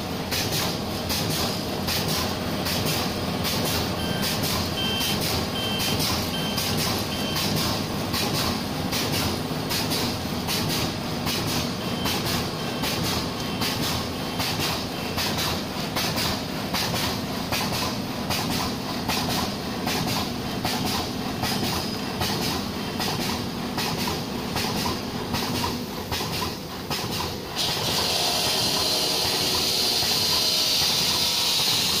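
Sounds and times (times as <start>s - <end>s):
cutting machine clacking: 0.3s - 32.0s
short beeps: 4.0s - 7.6s, 11.8s - 12.9s.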